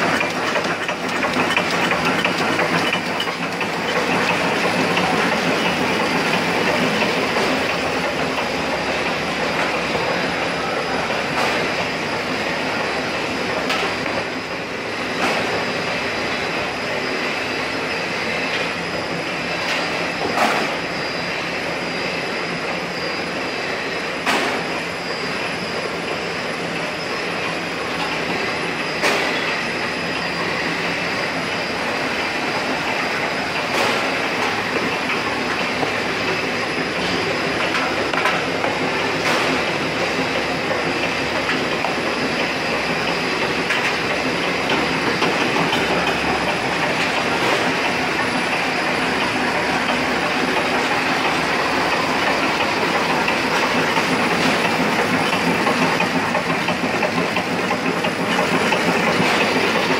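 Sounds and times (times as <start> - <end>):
packing machine clattering: 0.0 - 12.4, 30.7 - 59.9.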